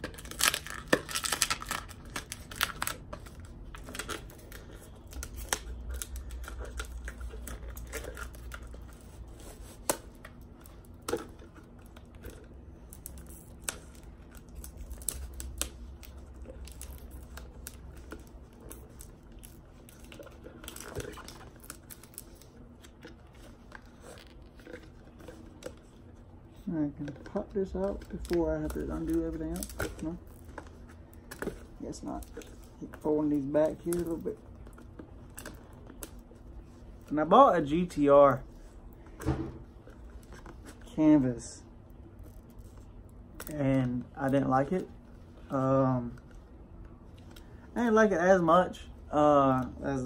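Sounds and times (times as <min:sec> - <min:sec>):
tape tearing: 0:00.0 - 0:26.0.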